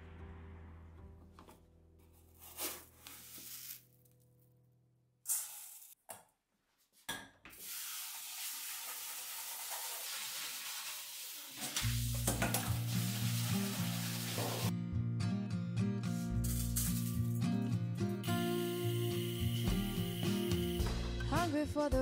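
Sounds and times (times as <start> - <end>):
tap water running: 7.5 - 14.7, 18.3 - 21.1
background music: 12.0 - 22.0.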